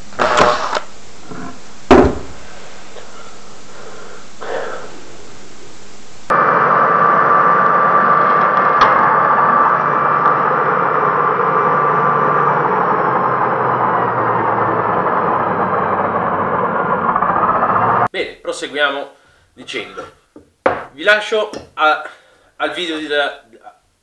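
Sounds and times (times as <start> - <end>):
mitre saw whining: 0.0 - 18.1.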